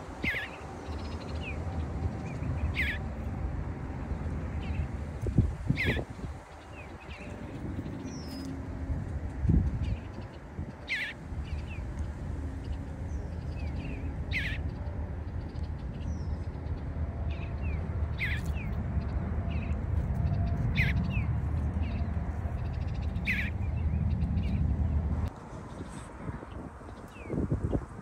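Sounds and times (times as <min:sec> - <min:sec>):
bluebird calling: 0:00.0 - 0:01.7, 0:02.3 - 0:03.1, 0:05.7 - 0:07.4, 0:10.8 - 0:11.7, 0:13.6 - 0:14.7, 0:18.1 - 0:18.7, 0:23.2 - 0:23.6
steady low rumble: 0:00.0 - 0:28.0.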